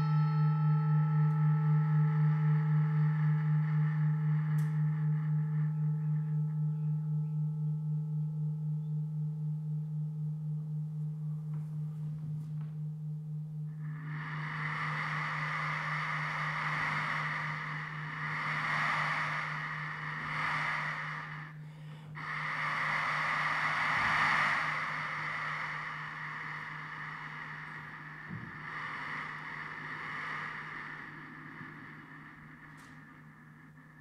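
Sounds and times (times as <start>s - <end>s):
steady low hum: 0.0s - 34.0s
breathy rushing noise into microphone: 13.9s - 34.0s.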